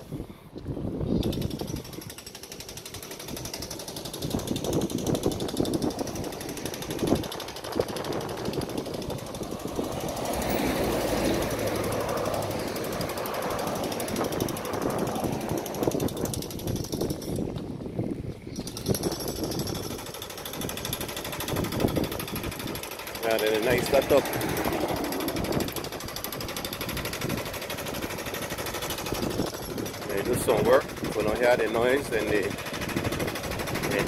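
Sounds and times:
road traffic: 0.0s - 34.0s
jackhammer breaking concrete: 1.2s - 17.5s, 18.6s - 34.0s
lorry passing: 5.8s - 17.0s, 22.0s - 30.1s.

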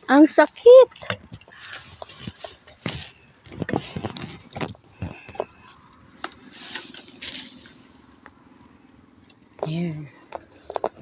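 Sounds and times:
rustling through tall grass: 6.4s - 8.1s.

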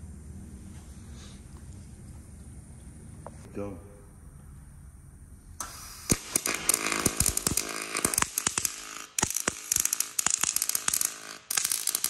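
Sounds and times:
welding arc crackling and sizzling: 5.6s - 12.0s.

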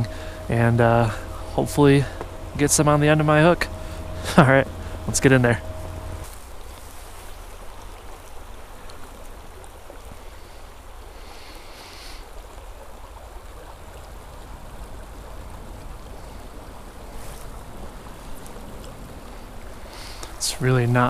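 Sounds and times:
river water rushing: 0.0s - 21.0s
wind rumble on microphone: 13.1s - 21.0s.

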